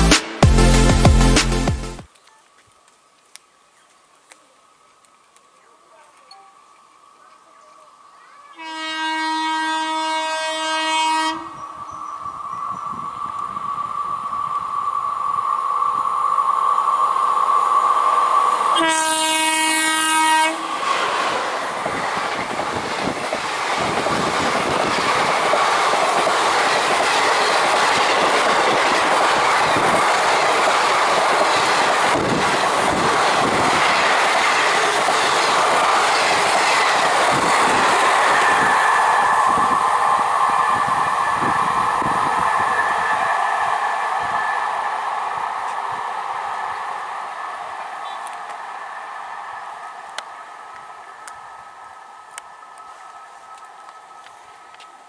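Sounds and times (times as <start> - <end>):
train horn blast: 8.6 - 11.6, 18.7 - 20.7
train passing at high speed: 8.6 - 55.0.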